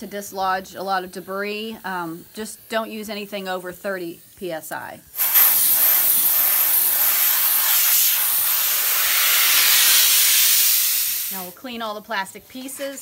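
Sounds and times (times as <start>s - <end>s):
compressed air hissing: 5.1s - 11.6s.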